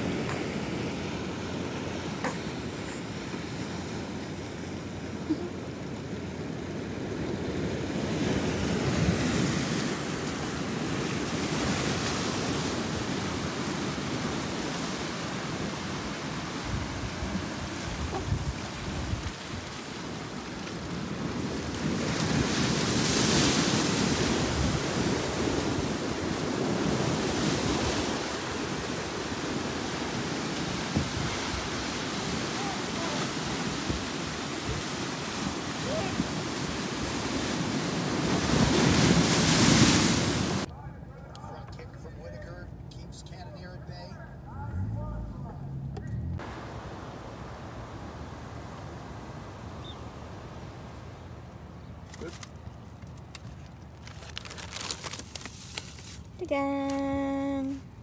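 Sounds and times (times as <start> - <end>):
surf breaking on rocks: 6.8 - 40.7, 46.4 - 51.4
wind on microphone: 7.2 - 19.8, 21.0 - 40.7.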